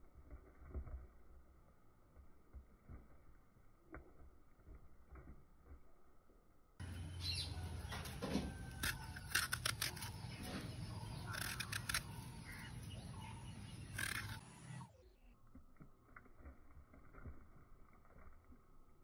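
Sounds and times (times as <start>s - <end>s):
sharp clicks and scrapes on steel: 7.9s - 12.9s, 13.8s - 14.9s.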